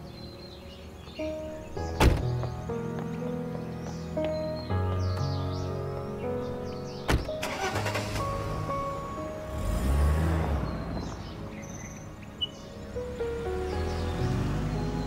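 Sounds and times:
birds chirping faintly: 0.0s - 15.0s
soft background music: 0.0s - 15.0s
car door shutting: 2.0s - 2.3s, 7.1s - 8.3s
car engine rumbling: 7.1s - 15.0s.

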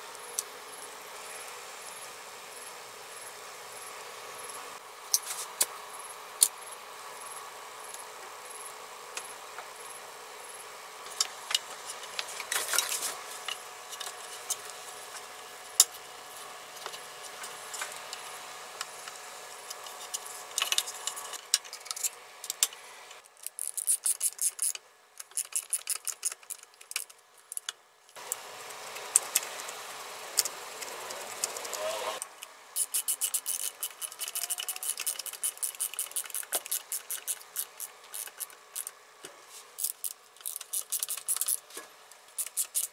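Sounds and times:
faint steady hum: 0.0s - 42.9s
hands handling small plastic parts: 19.7s - 28.2s, 31.1s - 38.9s, 39.8s - 41.8s, 42.4s - 42.9s.

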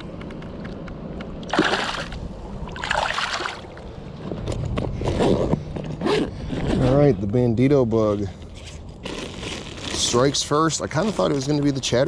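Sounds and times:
water splashing: 1.4s - 3.9s
backpack zipper opening: 5.0s - 7.1s, 9.0s - 10.2s.

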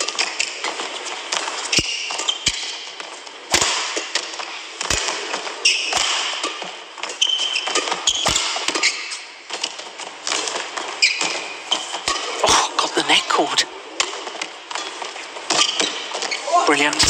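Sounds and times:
rackets striking shuttlecock: 0.0s - 12.4s
shoes squeaking on court: 0.0s - 12.4s, 14.0s - 17.0s
hall and crowd background: 11.5s - 17.0s.

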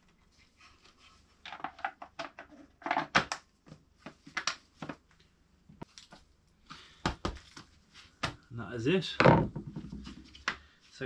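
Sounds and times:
plastic cover clicking and knocking: 1.5s - 3.5s.

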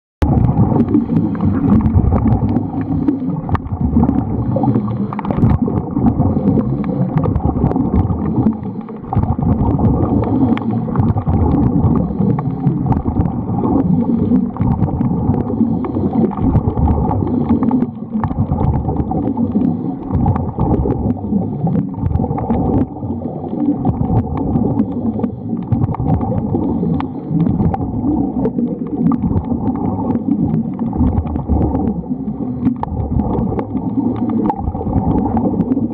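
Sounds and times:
muffled underwater rumble: 0.2s - 35.9s
faint clicks: 32.6s - 35.8s.

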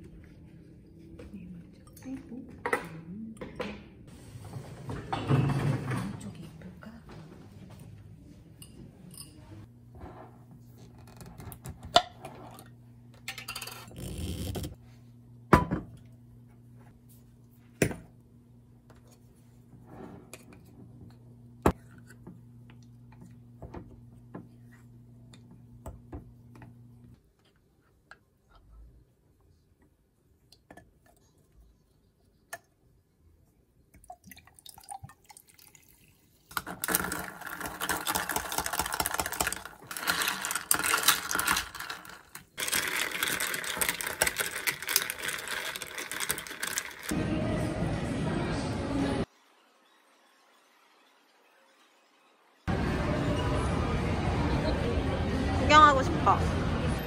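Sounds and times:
glassware clinking: 8.6s - 9.6s
liquid pouring: 34.0s - 47.1s
ice rattling in a glass: 36.5s - 47.1s.

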